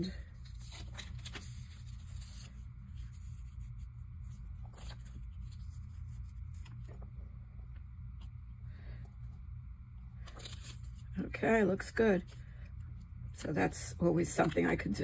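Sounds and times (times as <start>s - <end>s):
paper scraping and rustling: 0.0s - 7.1s, 10.2s - 11.2s
steady low hum: 0.0s - 15.0s.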